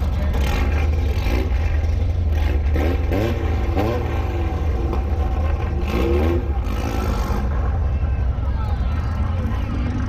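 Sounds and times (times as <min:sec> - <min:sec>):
engine revving: 0:00.0 - 0:07.7
car engines rumbling: 0:00.0 - 0:10.0.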